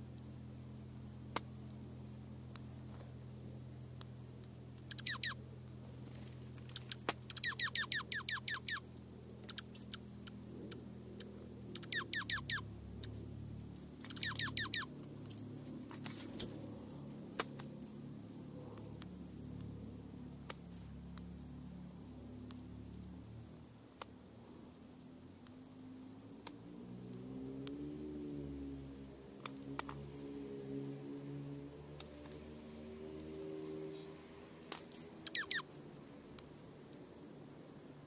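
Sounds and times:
distant road traffic hum: 0.0 - 38.0
bird singing whistled notes: 4.9 - 5.4, 6.8 - 8.8, 9.4 - 13.2, 13.8 - 15.5, 34.9 - 35.7
sharp clicks: 13.8 - 16.5.

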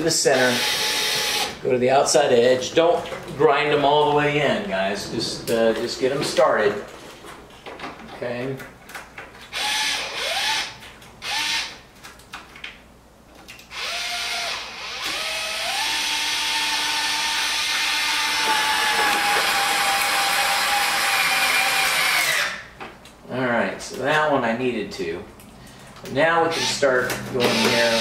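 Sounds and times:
cordless drill driving screws: 0.4 - 1.6, 9.5 - 11.8, 13.7 - 22.6, 26.5 - 26.8, 27.4 - 28.0.

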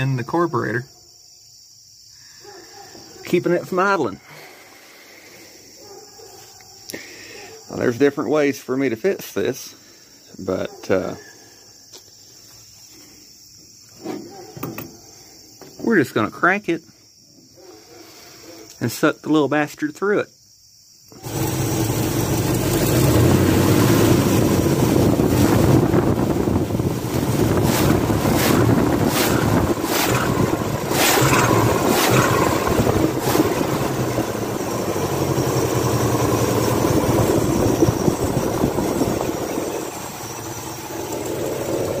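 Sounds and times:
car engine revving: 21.1 - 42.0.

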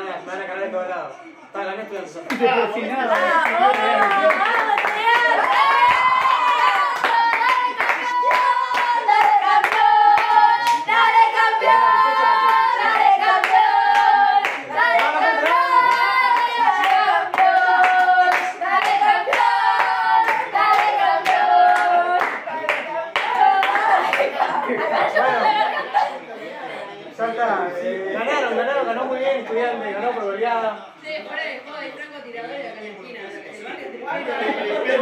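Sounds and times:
hands clapping: 3.1 - 10.9, 12.5 - 24.5
young women chanting together: 3.2 - 25.7.

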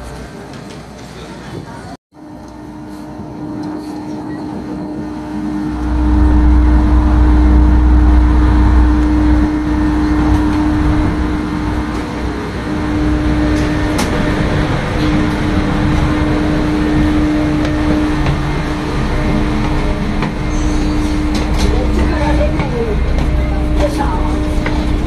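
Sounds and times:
ferry machinery humming: 2.2 - 25.0
deep rumble: 5.0 - 25.0.

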